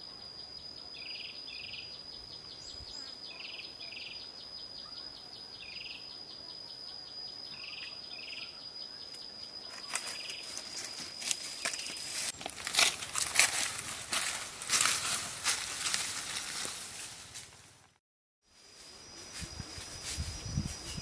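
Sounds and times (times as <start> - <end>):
short insect chirps: 0.0 - 17.8, 18.6 - 21.0
high insect trill: 0.0 - 21.0
footsteps crunching through dry leaves: 9.7 - 17.8.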